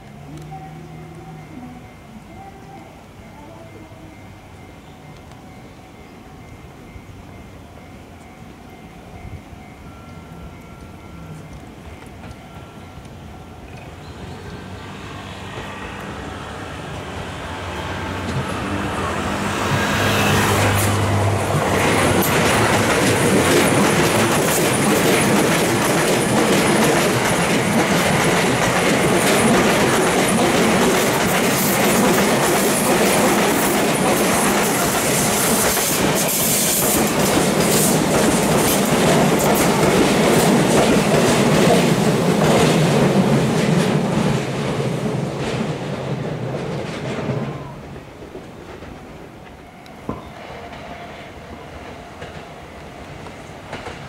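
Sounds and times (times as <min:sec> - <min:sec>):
electric train passing: 0:00.0 - 0:54.0
wheels clattering over rail joints: 0:19.7 - 0:50.9.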